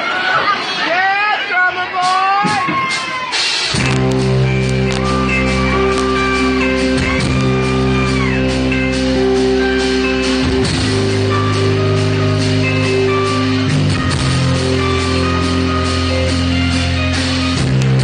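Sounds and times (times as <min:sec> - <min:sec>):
drums and cymbals: 0:01.8 - 0:18.0
electric guitar chords: 0:03.7 - 0:18.0.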